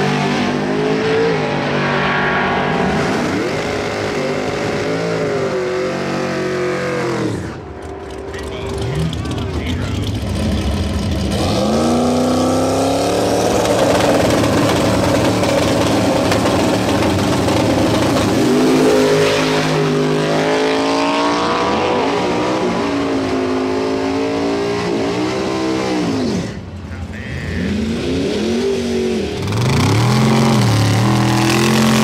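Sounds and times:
racing car engine at full throttle: 0.0 - 32.0.

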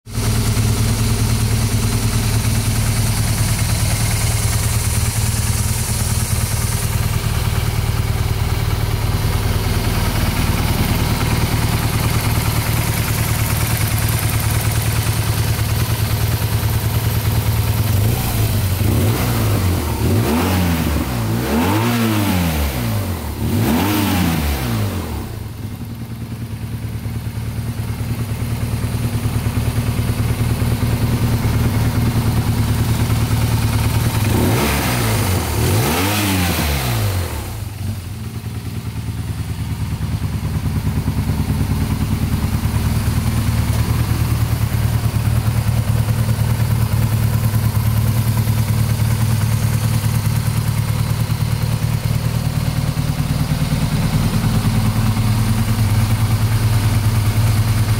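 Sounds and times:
motorcycle engine idling and revving: 0.0 - 57.9.

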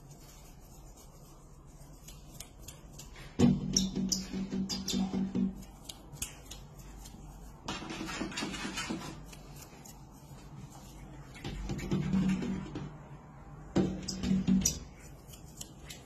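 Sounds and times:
scratchy rustle: 0.0 - 3.0.

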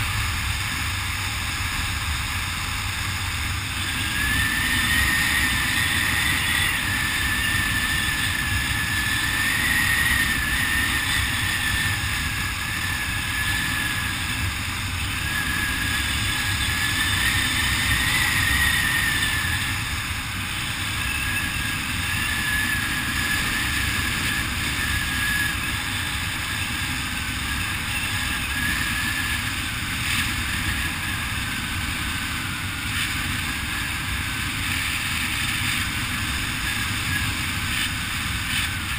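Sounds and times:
wind rushing over microphone: 0.0 - 38.9
thin wavering whistle: 3.8 - 20.0, 20.6 - 35.3.

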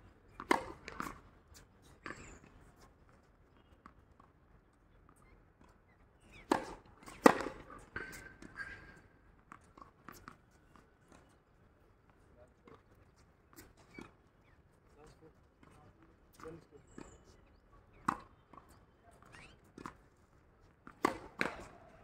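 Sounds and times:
tennis ball hits: 0.4 - 1.2, 6.3 - 8.7, 20.8 - 22.0.

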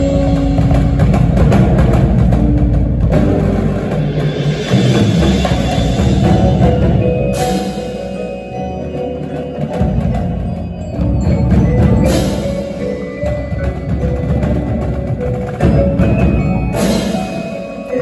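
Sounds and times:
marching drums: 0.0 - 18.0
marimbas playing: 0.0 - 18.0
cymbal crashes: 3.3 - 8.0.

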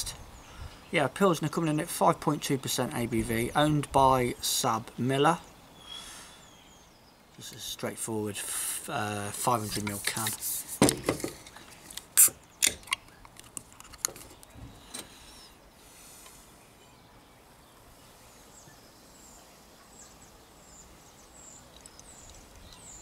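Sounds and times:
faint birds chirping: 0.0 - 23.0
beer can ring-pull cracking open: 11.9 - 14.4.

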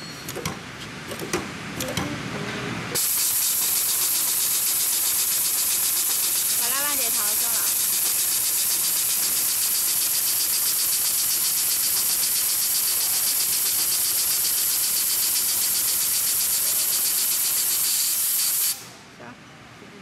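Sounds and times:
sewing machine stitching: 3.0 - 18.7.

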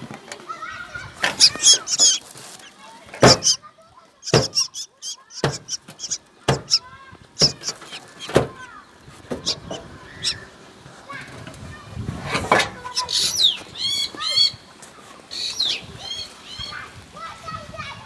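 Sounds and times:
nestlings begging chirps: 1.2 - 3.6, 4.2 - 10.6, 12.8 - 14.7, 15.3 - 16.7.

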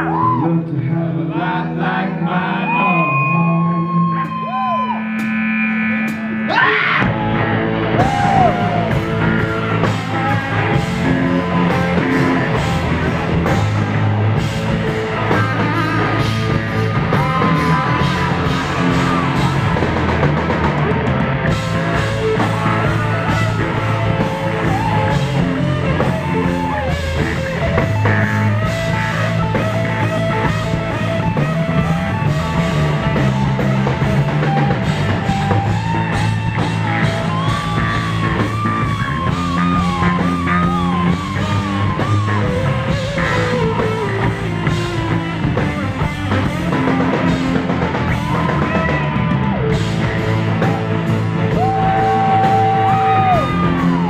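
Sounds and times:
person singing: 0.0 - 5.2
electric guitar: 0.0 - 54.0
rock band playing: 0.0 - 54.0.

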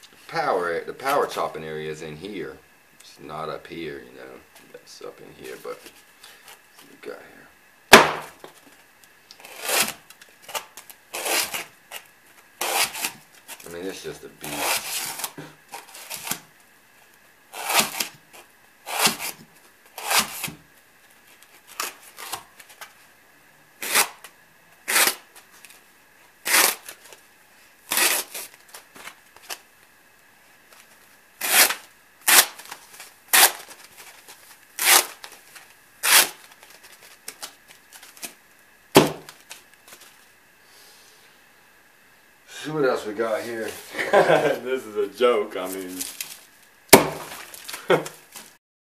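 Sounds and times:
knife slicing through foam: 11.2 - 11.7, 12.6 - 13.2, 17.6 - 18.1, 18.9 - 19.4, 20.0 - 20.6.

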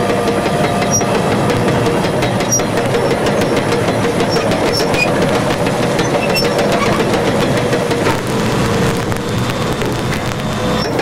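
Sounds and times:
fast rail clicks: 0.0 - 11.0
train rumbling over rails: 0.0 - 11.0
high metallic squeaks: 0.3 - 8.2, 10.4 - 11.0.

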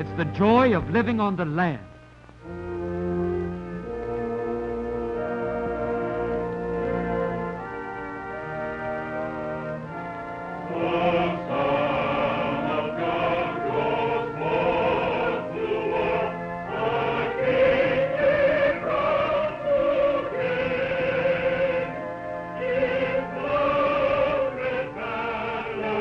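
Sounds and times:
reed organ playing chords: 0.0 - 26.0
group singing a hymn: 10.5 - 26.0.

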